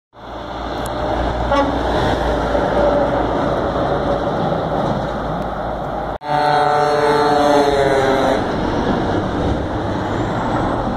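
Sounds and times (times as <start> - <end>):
truck horn toot: 1.5 - 1.9, 6.2 - 8.5.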